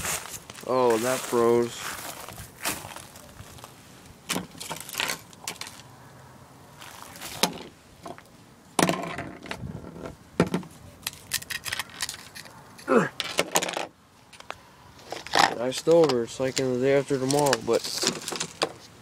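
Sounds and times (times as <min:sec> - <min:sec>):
small device handled on wooden deck: 0:04.0 - 0:05.9, 0:06.8 - 0:19.0
ice-coated cables clicking and crackling: 0:11.0 - 0:13.7, 0:14.3 - 0:18.8.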